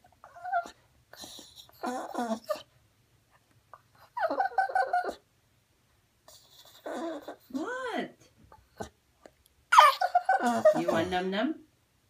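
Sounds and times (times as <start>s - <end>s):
dog whining: 0.0s - 2.8s, 3.7s - 5.3s, 6.3s - 7.6s, 8.5s - 9.0s, 9.7s - 11.2s.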